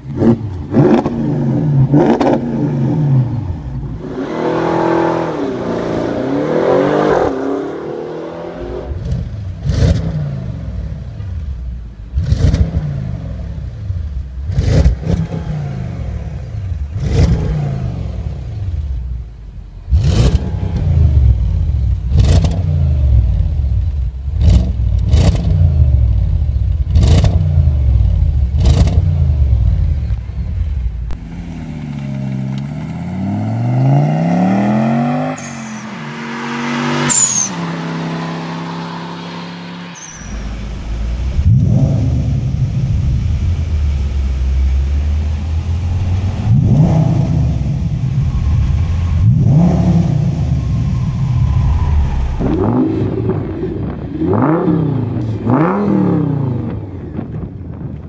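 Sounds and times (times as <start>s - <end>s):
car accelerating along road: 0.0s - 58.0s
car engine revving: 0.0s - 58.0s
car engine idling: 27.6s - 33.2s.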